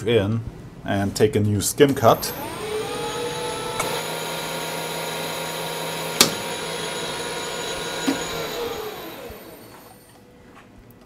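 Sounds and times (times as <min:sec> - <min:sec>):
lathe motor whining: 0:02.0 - 0:10.2.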